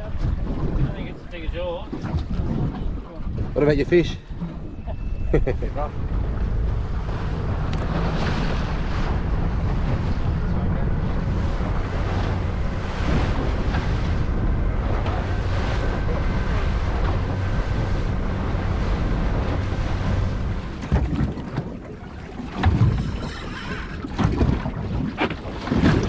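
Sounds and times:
outboard motor running at speed: 0.0 - 26.0
wind buffeting microphone: 0.0 - 26.0
hull throwing spray: 6.0 - 21.8.

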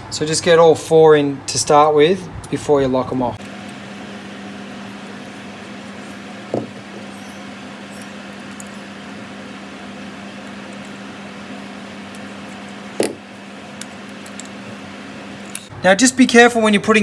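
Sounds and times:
steady low hum: 0.0 - 16.6
screwdriver set down on metal: 6.5 - 6.8.

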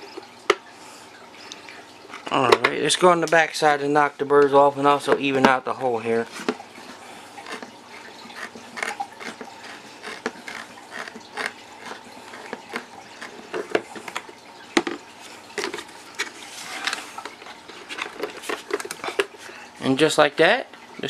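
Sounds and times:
deburring tool scraping plastic: 6.3 - 15.0.

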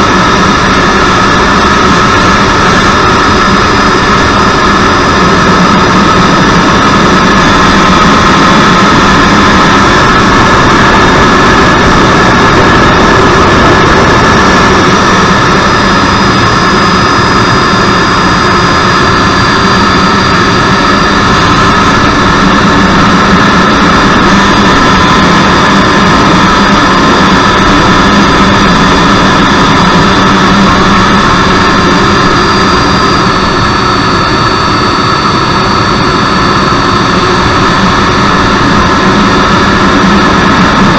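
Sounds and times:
electric ducted fan whine: 0.0 - 40.9.

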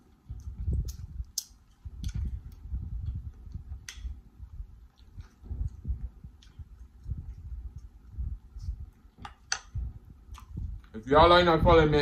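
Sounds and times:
chewing with wet mouth clicks: 0.3 - 10.9
lip smacks: 8.6 - 10.6.

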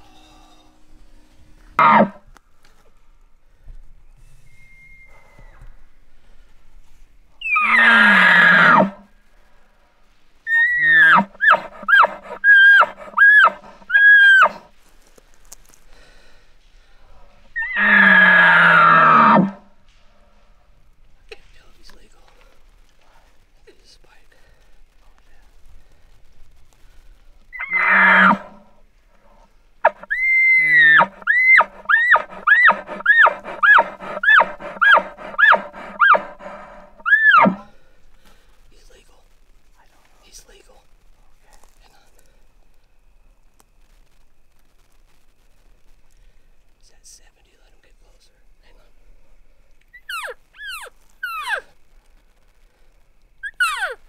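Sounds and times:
elk whistling bugle: 1.8 - 2.2, 4.2 - 5.8, 7.4 - 9.0, 10.5 - 14.7, 17.6 - 19.6, 27.5 - 28.7, 29.8 - 37.8, 53.4 - 54.0
elk low growl: 10.5 - 14.6, 27.6 - 28.6, 29.8 - 37.7.

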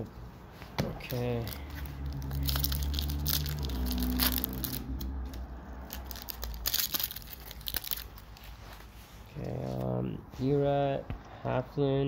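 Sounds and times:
foil wrapper crackling: 1.0 - 5.0, 5.8 - 8.4.

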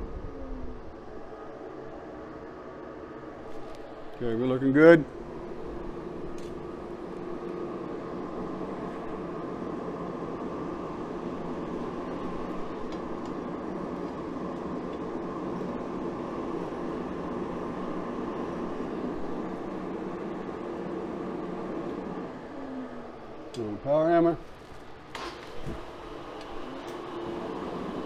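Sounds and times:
gas burner rushing hum: 0.0 - 28.0.

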